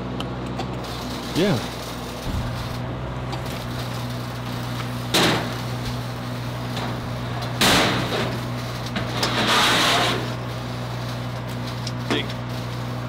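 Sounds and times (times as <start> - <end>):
steady low hum: 0.0 - 13.0
gas cylinder clanking on steel: 2.2 - 6.0
cylinder scraping on metal: 6.6 - 10.4.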